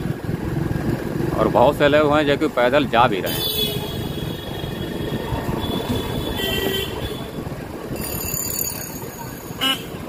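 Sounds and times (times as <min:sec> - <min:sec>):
motorbike engine: 0:00.0 - 0:10.0
wind noise: 0:02.2 - 0:08.8
vehicle horn toot: 0:03.3 - 0:07.4, 0:09.6 - 0:10.0.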